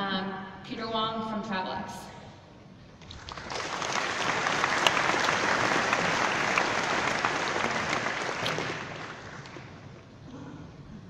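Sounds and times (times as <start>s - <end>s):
large audience applauding: 3.0s - 10.0s.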